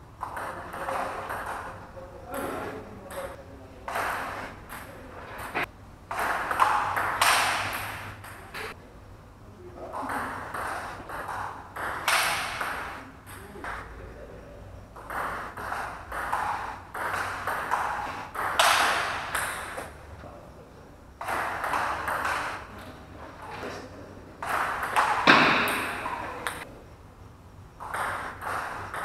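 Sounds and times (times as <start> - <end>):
voices talking: 0.2 - 27.1
ping pong ball clicking: 2.4 - 8.7, 10.0 - 13.8, 15.0 - 19.9, 21.2 - 22.7, 24.4 - 26.7, 27.8 - 29.0.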